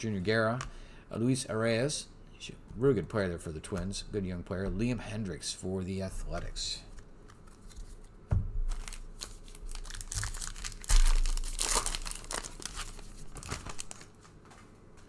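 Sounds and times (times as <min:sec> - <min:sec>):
foil wrapper crinkling and tearing: 0:08.7 - 0:14.3.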